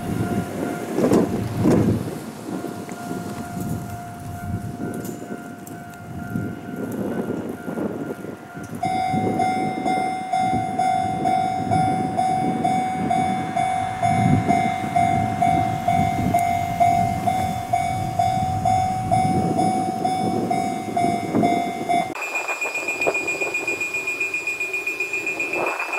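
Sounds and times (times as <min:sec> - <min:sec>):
fainter high-pitched bell: 0:00.0 - 0:01.0, 0:02.5 - 0:25.9
level-crossing warning bell: 0:00.0 - 0:25.9
low rumble: 0:08.8 - 0:25.9.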